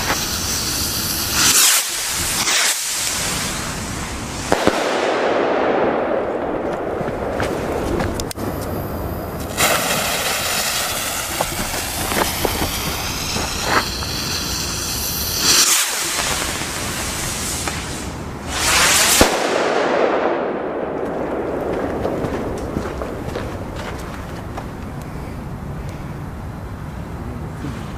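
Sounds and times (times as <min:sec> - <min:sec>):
rocket hissing whoosh: 0:00.0 - 0:05.8, 0:08.4 - 0:20.6
rocket rushing burst: 0:00.0 - 0:24.8
sharp firework crack: 0:00.0 - 0:25.0.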